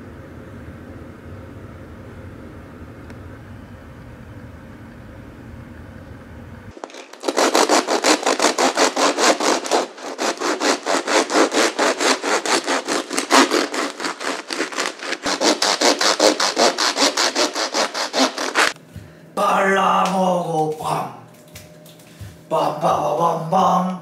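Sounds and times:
knife sawing through bread: 6.8s - 18.8s.

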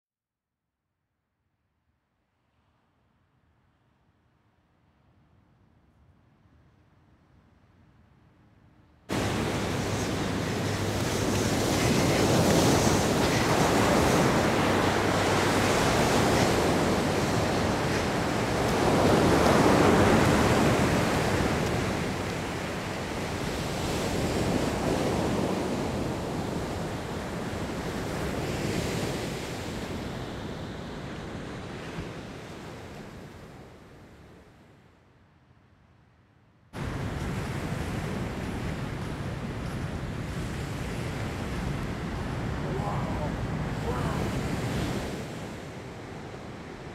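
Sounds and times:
ocean surf breaking on sand: 9.1s - 33.6s, 36.8s - 46.9s.

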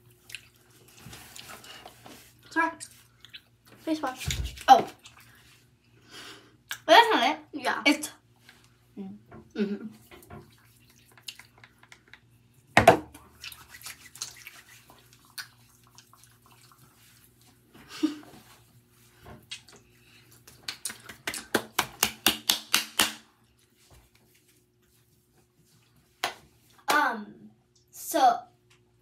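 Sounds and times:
wet squishing of hands rubbing: 0.0s - 5.9s, 10.0s - 26.8s
hand claps: 20.5s - 23.3s, 26.2s - 27.0s.

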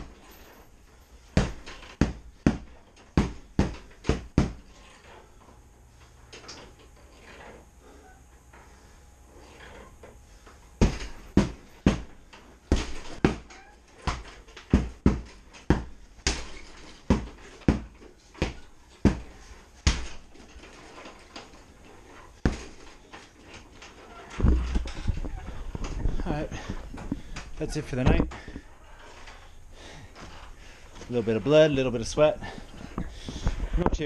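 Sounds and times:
punching bag being struck: 1.3s - 4.7s, 10.8s - 20.2s, 22.4s - 22.9s.

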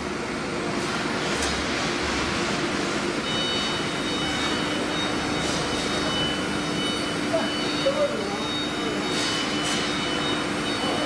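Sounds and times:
cnc router machine whine: 3.1s - 11.0s
high steady tone: 3.2s - 11.0s.

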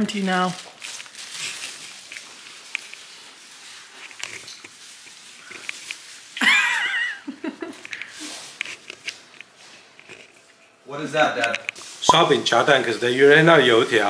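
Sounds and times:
rustling: 0.5s - 6.4s.

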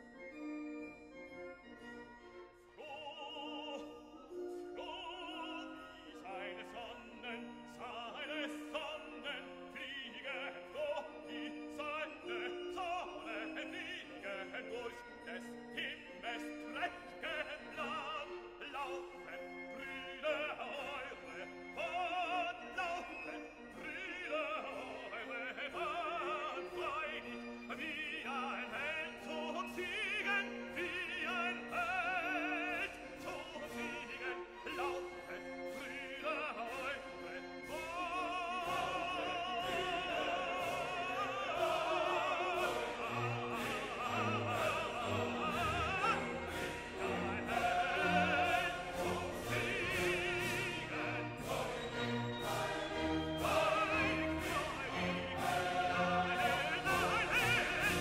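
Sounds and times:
orchestral accompaniment: 0.0s - 58.0s
operatic voice singing: 2.7s - 58.0s.

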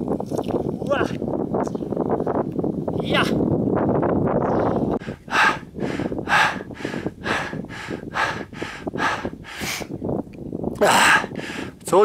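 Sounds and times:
person panting heavily: 4.9s - 10.0s, 10.8s - 11.8s.

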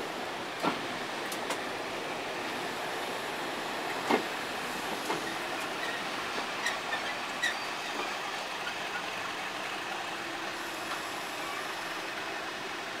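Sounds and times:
diesel locomotive running: 0.0s - 13.0s.

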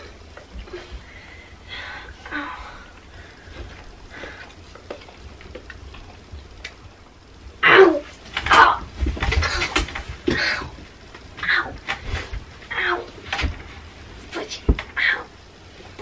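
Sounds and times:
quiet breathing: 0.0s - 4.9s.

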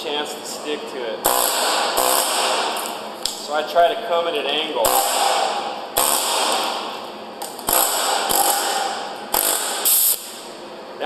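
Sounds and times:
air chisel hammering concrete: 1.3s - 2.8s, 4.8s - 6.8s, 7.6s - 10.2s.

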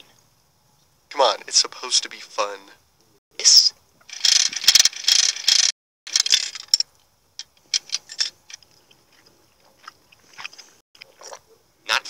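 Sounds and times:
gumball machine crank ratcheting: 4.1s - 6.8s.

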